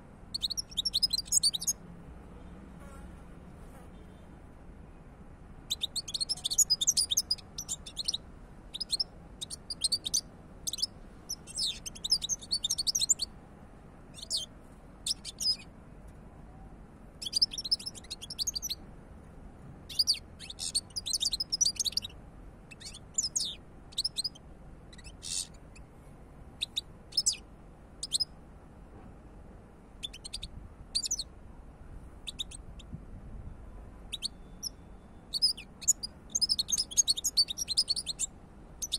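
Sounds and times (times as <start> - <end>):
finch twittering song: 0.3 - 1.8, 5.7 - 13.3, 14.1 - 15.7, 17.2 - 18.8, 19.9 - 25.9, 26.6 - 27.4, 28.0 - 28.3, 30.0 - 31.3, 32.2 - 32.9, 34.1 - 38.9.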